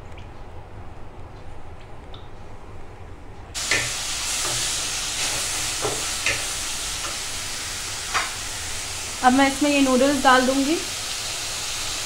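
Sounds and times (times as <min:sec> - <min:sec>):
vegetables sizzling in a wok: 0:03.6 - 0:12.0.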